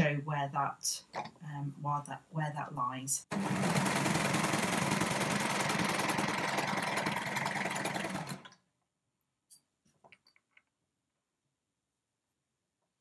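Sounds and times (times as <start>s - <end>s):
overlocker sewing machine running: 3.3s - 8.6s.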